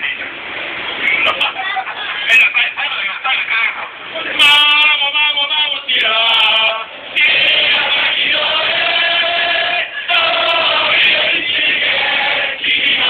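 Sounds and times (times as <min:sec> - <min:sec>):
crowd of men chanting: 0:05.9 - 0:13.0.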